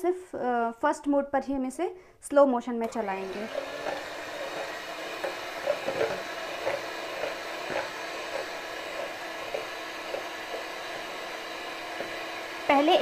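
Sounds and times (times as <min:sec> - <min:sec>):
beaters churning liquid cream: 0:02.8 - 0:13.0
electric hand mixer running: 0:02.8 - 0:13.0.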